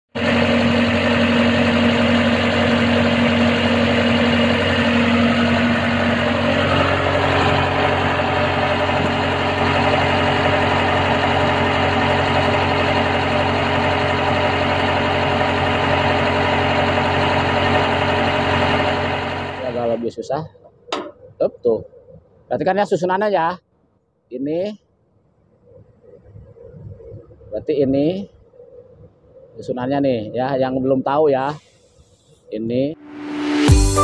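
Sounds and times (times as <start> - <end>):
excavator diesel engine droning: 0.1 - 20.0, 33.0 - 34.0.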